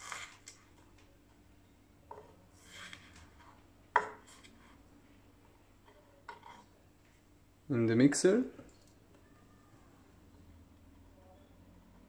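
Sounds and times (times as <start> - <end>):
knife scraping: 0.0 - 0.6, 6.3 - 6.7.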